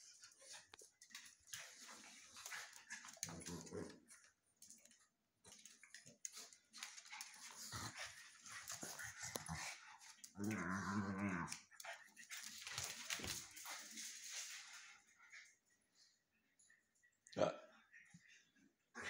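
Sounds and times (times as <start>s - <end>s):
dogs scuffling: 0.0s - 15.1s
dogs growling: 1.9s - 4.3s, 7.2s - 12.6s.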